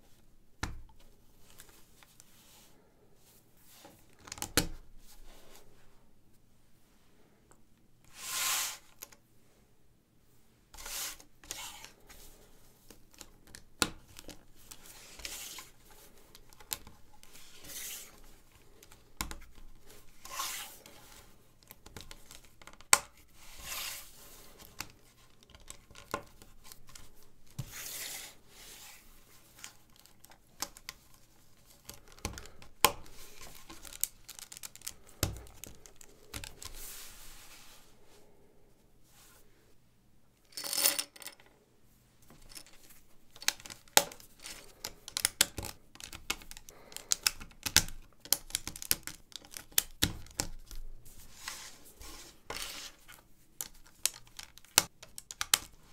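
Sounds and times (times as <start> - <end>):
plastic bricks clicking together: 43.4 - 50.5.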